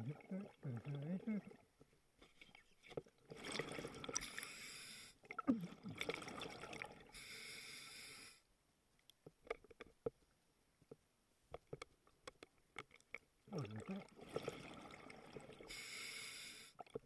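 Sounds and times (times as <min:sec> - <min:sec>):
bubbles: 0:02.4 - 0:04.4, 0:05.2 - 0:07.1, 0:13.5 - 0:15.7
small clicks and pops: 0:09.0 - 0:13.3
diver breathing through regulator: 0:15.7 - 0:16.8.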